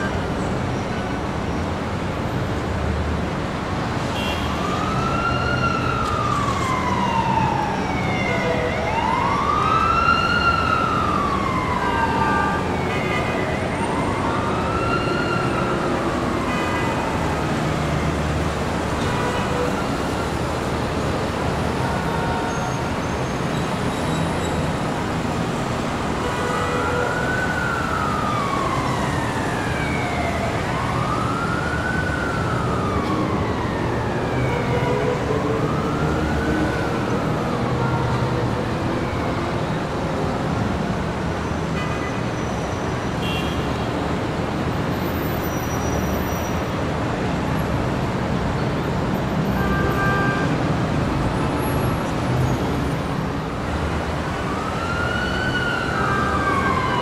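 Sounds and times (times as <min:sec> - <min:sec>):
street traffic noise: 0:00.0 - 0:57.0
siren wailing: 0:04.6 - 0:18.1, 0:26.5 - 0:39.7, 0:54.2 - 0:57.0.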